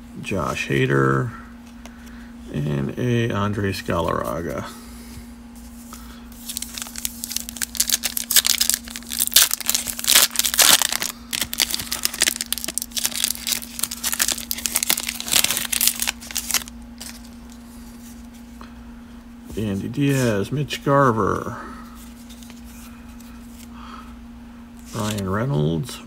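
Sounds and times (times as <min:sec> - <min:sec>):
faint steady hum: 0:00.0 - 0:26.0
foil wrapper tearing and crinkling: 0:06.4 - 0:17.4.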